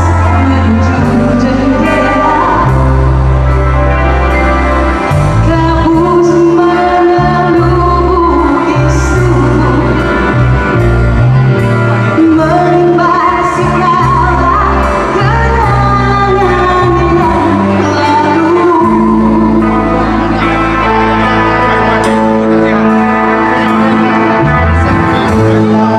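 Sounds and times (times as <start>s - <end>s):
woman singing into microphone: 0.0s - 3.0s, 5.3s - 10.3s, 12.2s - 20.5s, 25.3s - 25.9s
bass guitar: 0.0s - 25.9s
electric guitar: 0.0s - 25.9s.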